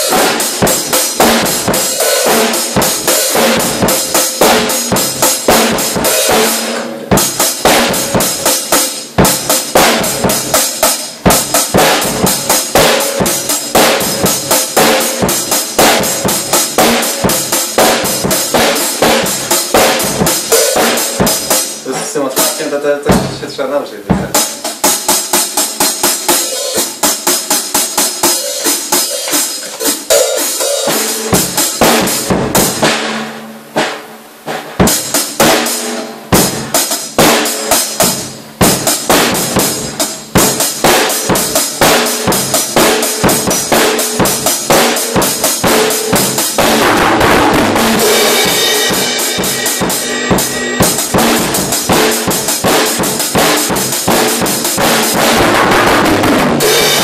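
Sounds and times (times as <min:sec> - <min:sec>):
cymbals ringing: 0:00.0 - 0:23.6, 0:38.8 - 0:57.0
drum kit playing: 0:00.0 - 0:57.0.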